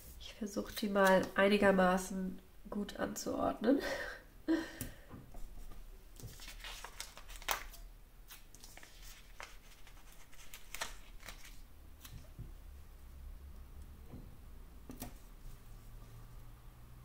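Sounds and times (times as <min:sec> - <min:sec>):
paper stickers rustling and tapping: 0:05.6 - 0:12.6.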